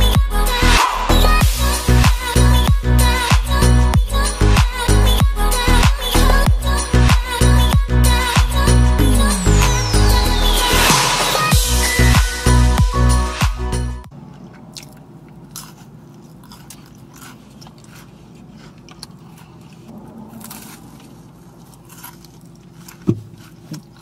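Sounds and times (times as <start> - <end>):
music with steady beat: 0.0 - 14.1
person crunching snack: 14.2 - 24.0.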